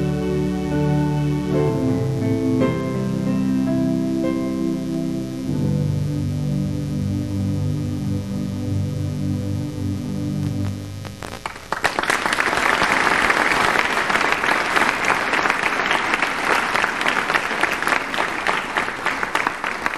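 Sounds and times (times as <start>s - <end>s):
electronic keyboard chord: 0.0s - 11.4s
audience applause: 11.4s - 19.9s.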